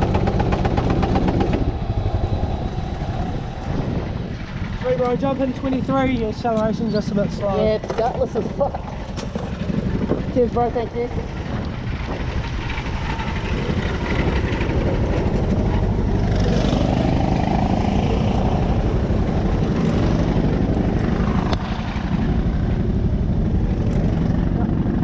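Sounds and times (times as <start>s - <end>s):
go-kart engines droning: 0.0s - 25.0s.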